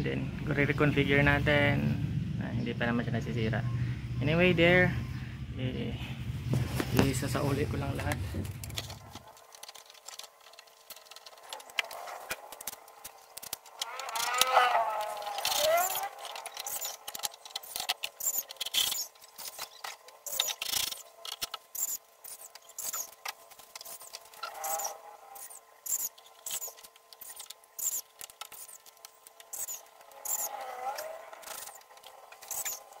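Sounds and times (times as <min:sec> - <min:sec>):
clicks and knocks of handling: 0:08.0 - 0:24.8, 0:25.9 - 0:30.4.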